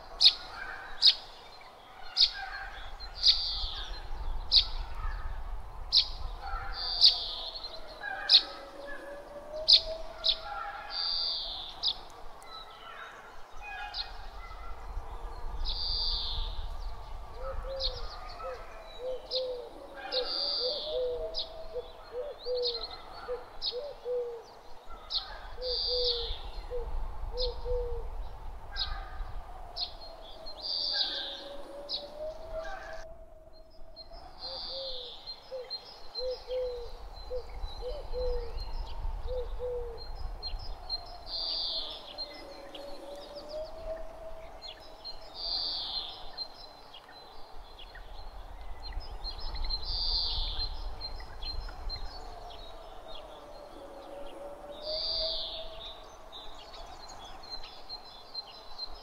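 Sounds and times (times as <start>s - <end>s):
low breeze rumble: 0.0s - 59.0s.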